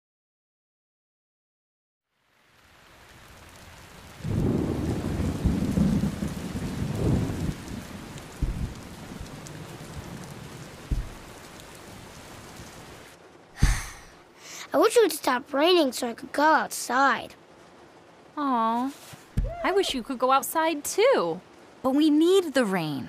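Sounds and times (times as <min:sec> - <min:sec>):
rain falling: 0:02.1 - 0:23.0
thunder rumbling: 0:03.5 - 0:14.1, 0:19.3 - 0:20.3
low thumps: 0:06.8 - 0:10.2, 0:10.8 - 0:11.7, 0:13.6 - 0:14.2, 0:19.3 - 0:20.0.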